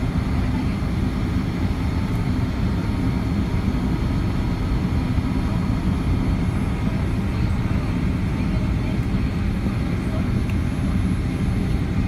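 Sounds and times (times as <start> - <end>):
jet engine rumble in cabin: 0.0 - 12.0.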